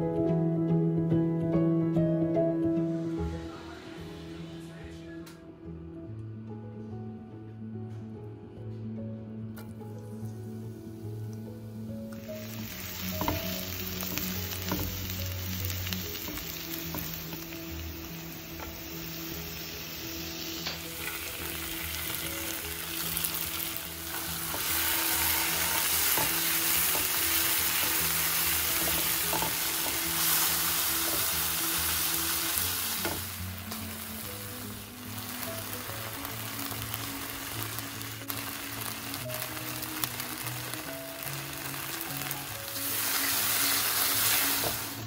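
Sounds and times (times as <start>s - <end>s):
garlic sizzling in oil: 10.0s - 45.0s
spatula scraping a pan: 24.2s - 31.5s.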